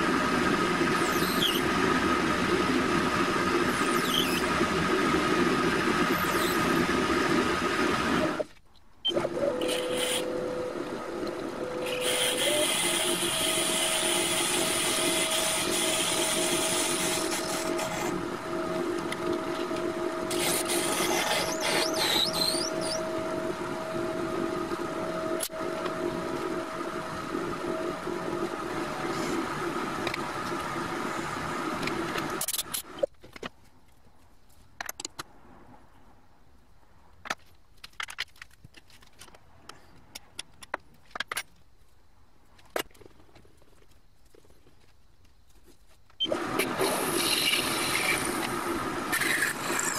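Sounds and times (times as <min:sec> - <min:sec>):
lathe drilling brass: 0:09.6 - 0:10.3, 0:11.8 - 0:18.1.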